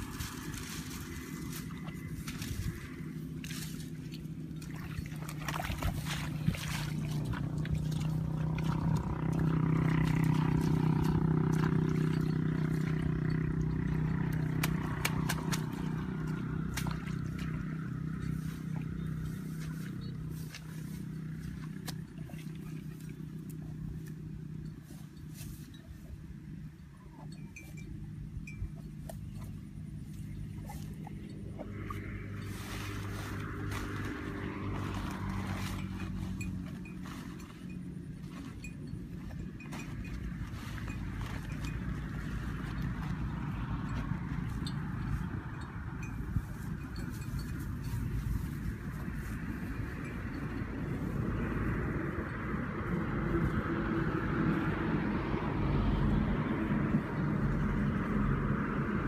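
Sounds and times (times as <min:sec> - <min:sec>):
dry palm fronds crackling: 0:00.0 - 0:04.5
low steady hum: 0:00.0 - 0:59.0.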